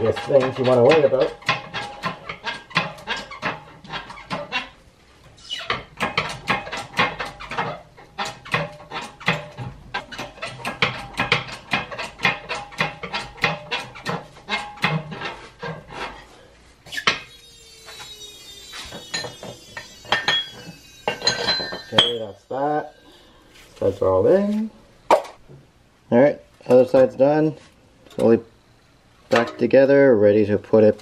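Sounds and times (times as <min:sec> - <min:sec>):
hydraulic press clicking: 0:16.9 - 0:22.2
metallic ringing: 0:17.1 - 0:24.4
sharp metallic bang: 0:18.0 - 0:23.3.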